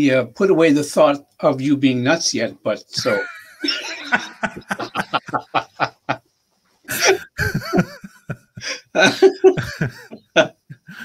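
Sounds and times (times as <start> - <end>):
men laughing: 3.0 - 6.2, 6.9 - 11.0.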